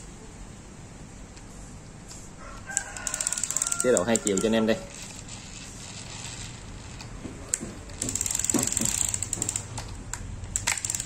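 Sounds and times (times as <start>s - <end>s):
fishing reel clicking: 3.0s - 7.0s, 8.0s - 9.8s, 10.6s - 11.0s.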